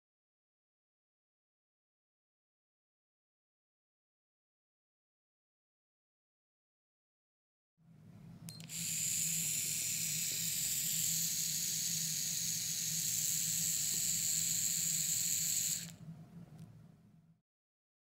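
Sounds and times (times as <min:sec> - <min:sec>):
grinder high whine: 0:08.6 - 0:16.0.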